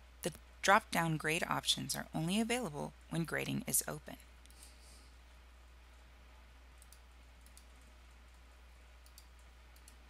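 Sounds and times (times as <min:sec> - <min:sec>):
low electrical hum: 0:00.0 - 0:10.0
computer mouse clicks: 0:06.8 - 0:08.4, 0:09.0 - 0:10.0.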